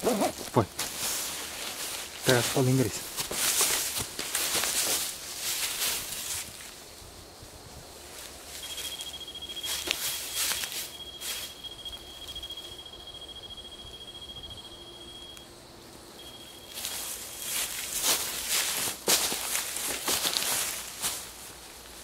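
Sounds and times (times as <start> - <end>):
footsteps rustling through leaves: 0.1 - 12.4, 16.2 - 22.0
insect trilling: 8.4 - 18.6.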